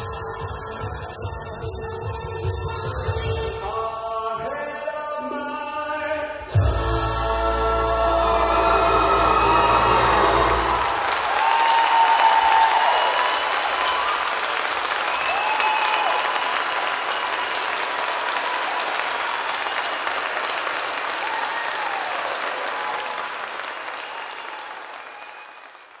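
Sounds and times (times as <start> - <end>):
audience applauding: 8.6 - 26.0.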